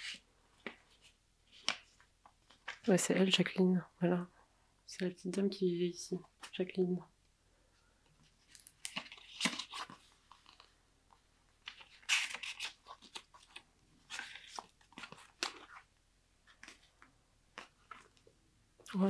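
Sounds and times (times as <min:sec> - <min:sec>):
paper rustling and crinkling: 0:08.2 - 0:18.3.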